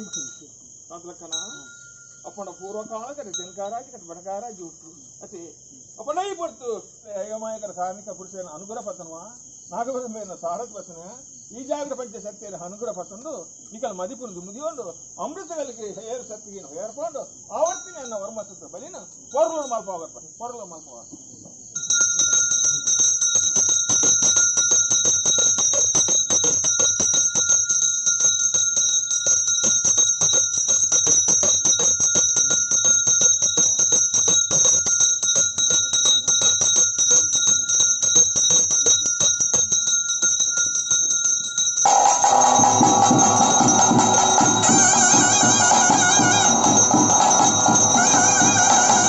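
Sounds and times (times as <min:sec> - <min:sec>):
hand bell ringing rapidly: 0:00.0 - 0:00.5, 0:01.2 - 0:03.8, 0:17.6 - 0:18.4, 0:21.8 - 0:49.0
traditional drums and band music: 0:23.4 - 0:28.4, 0:29.3 - 0:39.6, 0:41.8 - 0:49.0.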